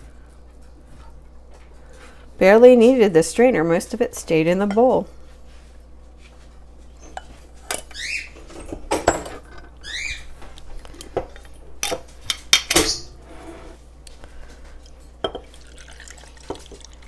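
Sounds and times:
kitchenware clinking and knocking: 0:08.5 - 0:09.8.

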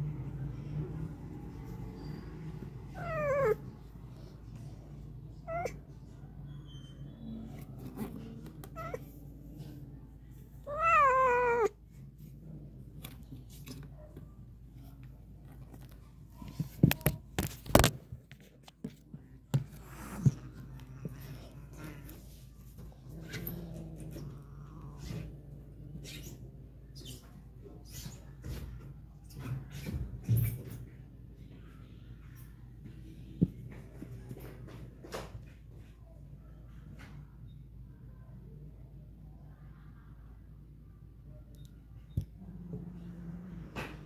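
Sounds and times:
cats yowling: 0:02.9 - 0:03.7, 0:10.6 - 0:11.8.

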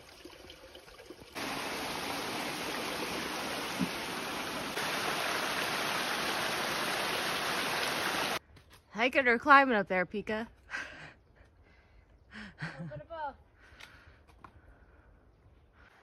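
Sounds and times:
stream cascading down a waterfall: 0:01.4 - 0:08.4.

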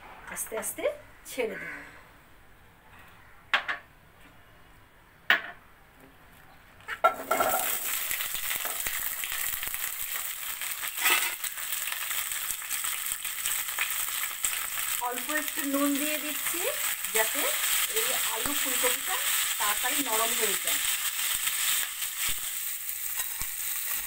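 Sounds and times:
vegetables sizzling in hot oil: 0:07.0 - 0:24.0.

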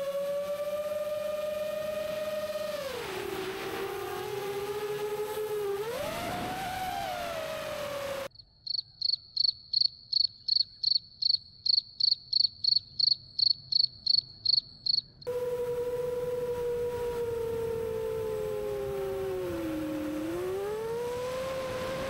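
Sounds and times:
quadcopter motors whining: 0:00.0 - 0:08.3, 0:15.3 - 0:22.0.

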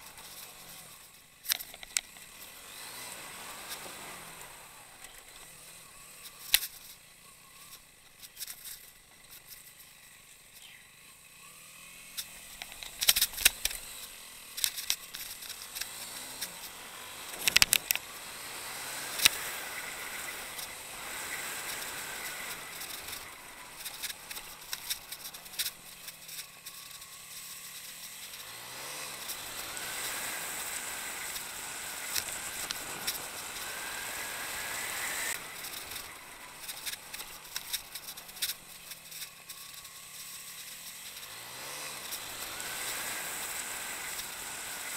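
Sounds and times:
motorcycle knocking and rattling: 0:00.0 - 0:02.5, 0:05.0 - 0:18.2, 0:19.0 - 0:43.4
faint motorcycle engine: 0:00.0 - 0:44.9.

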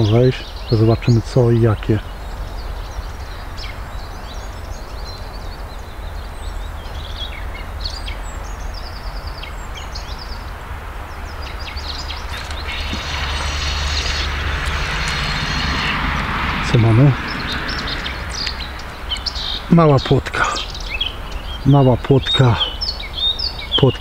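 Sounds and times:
small birds chirping: 0:00.0 - 0:24.0
steady low rumble: 0:10.4 - 0:21.6
fishing reel whirring: 0:12.0 - 0:18.7.

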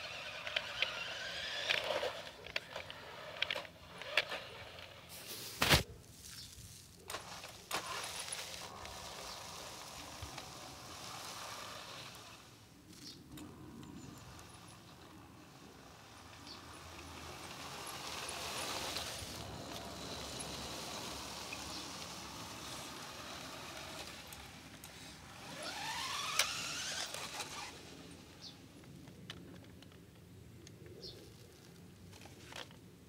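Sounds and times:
toy truck motor whirring: 0:00.0 - 0:05.6, 0:07.1 - 0:28.8
motor whine rising in pitch: 0:15.5 - 0:27.9.

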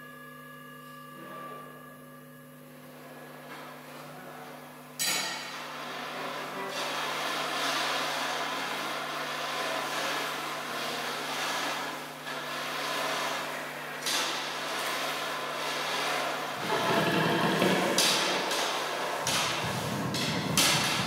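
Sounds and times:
noisy electric guitar wash: 0:04.8 - 0:21.0
low amplifier hum: 0:16.5 - 0:21.0.

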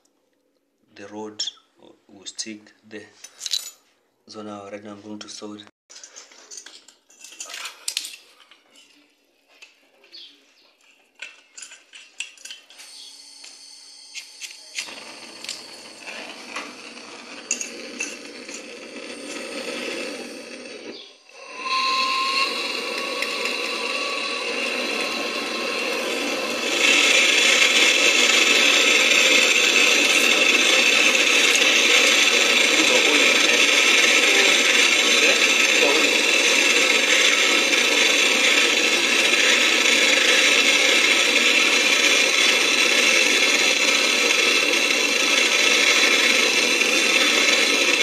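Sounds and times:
gas torch hissing: 0:14.5 - 0:48.0.

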